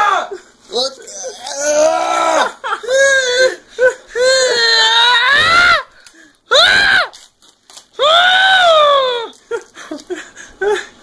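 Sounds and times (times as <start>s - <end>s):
man screaming in pain: 0.0s - 5.8s.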